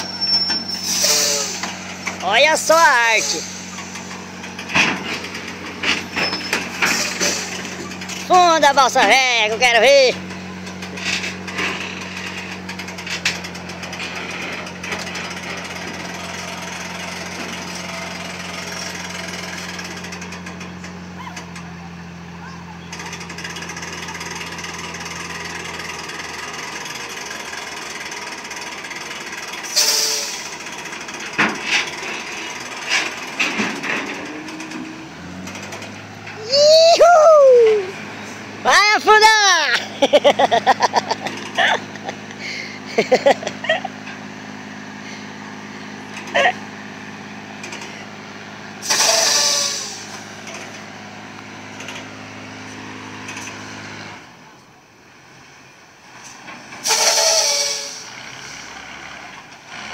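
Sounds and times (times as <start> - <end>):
diesel truck engine rattling: 0.0 - 59.9
short hiss: 48.8 - 50.2.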